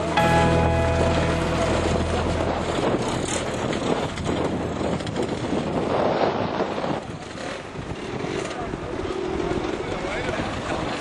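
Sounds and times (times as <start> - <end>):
wind buffeting microphone: 2.9 - 11.0.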